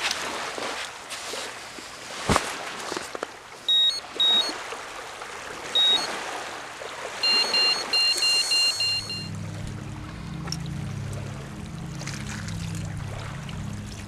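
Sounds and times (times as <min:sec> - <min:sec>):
small waves lapping: 0:00.0 - 0:14.0
electronic bite alarm beeping: 0:03.7 - 0:04.6, 0:05.8 - 0:06.2, 0:07.2 - 0:09.3.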